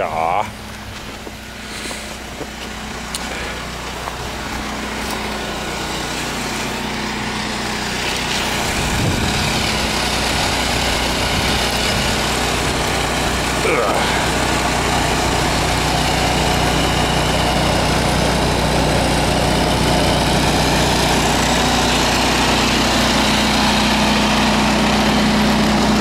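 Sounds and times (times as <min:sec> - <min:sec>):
snowblower engine running: 0:00.0 - 0:26.0
hiss of thrown snow: 0:01.6 - 0:02.2.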